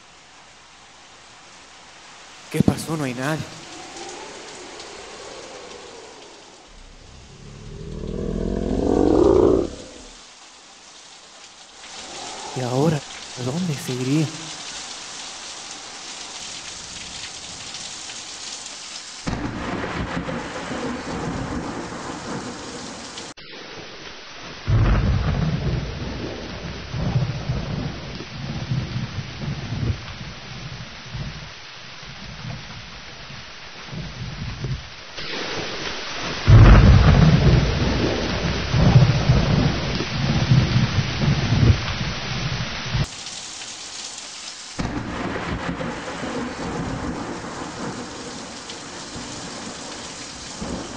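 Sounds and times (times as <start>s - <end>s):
steady rain: 0.0s - 50.9s
thunder rumbling: 2.5s - 10.2s, 19.3s - 22.8s, 24.7s - 30.1s, 35.2s - 42.0s, 44.8s - 50.9s.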